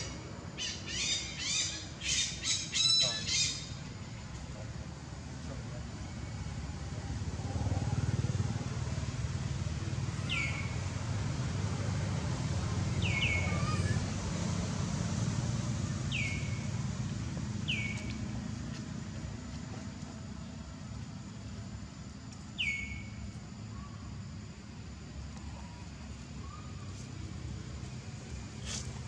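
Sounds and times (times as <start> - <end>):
high bird calls: 0.0 - 3.9, 12.9 - 14.0, 15.8 - 16.8, 17.6 - 18.3, 22.6 - 24.1, 25.5 - 27.1
distant traffic rumble: 0.0 - 29.0.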